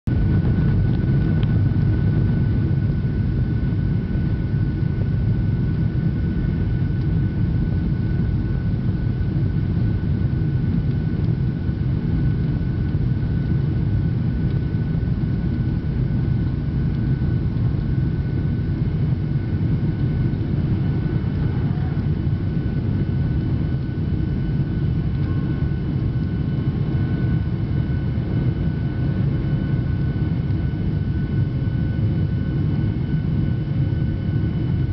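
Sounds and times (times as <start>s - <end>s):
jet engines rumbling in cabin: 0.1s - 34.9s
high engine whines: 17.7s - 30.9s.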